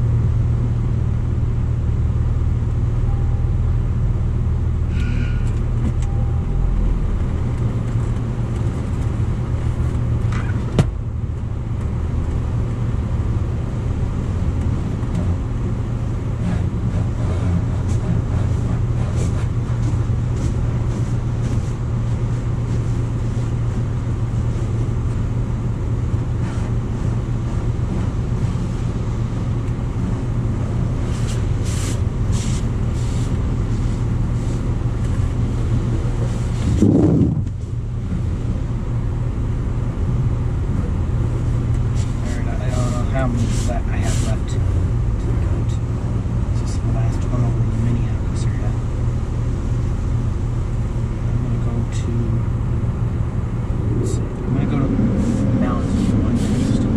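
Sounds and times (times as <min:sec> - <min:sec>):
car wash low hum: 0:00.0 - 0:56.9.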